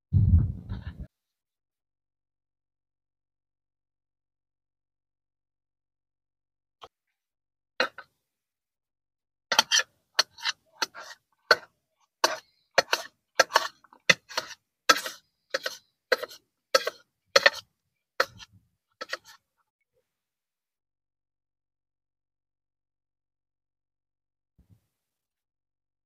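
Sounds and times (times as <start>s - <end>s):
knife chopping cucumber on plate: 9.5s - 17.6s.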